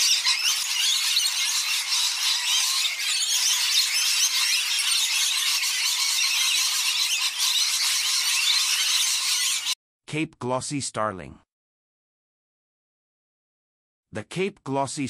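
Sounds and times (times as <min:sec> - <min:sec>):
parrots chattering shrilly: 0:00.0 - 0:09.8.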